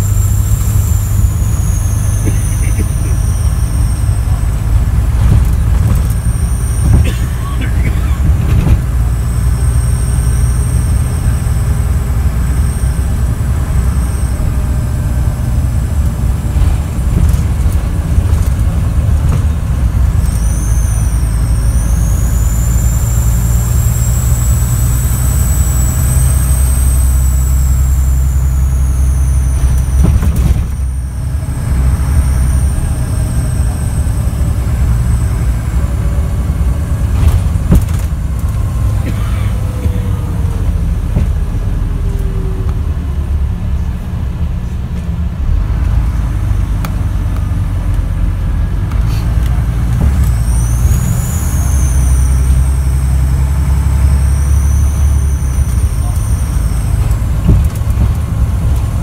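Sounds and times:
turbo whistle: 0:00.0 - 0:04.7, 0:06.0 - 0:08.3, 0:09.1 - 0:15.8, 0:20.2 - 0:36.1, 0:50.1 - 0:57.6
heavy diesel engine drone: 0:00.0 - 0:59.0.

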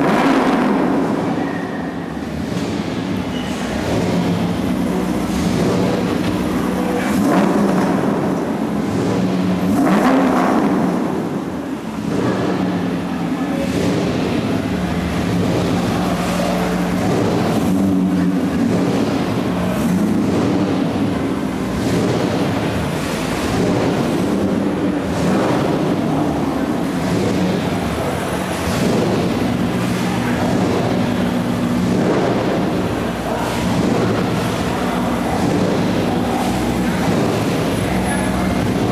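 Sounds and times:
car engines idling: 0:00.0 - 0:38.9
car pulling away: 0:00.0 - 0:38.9.

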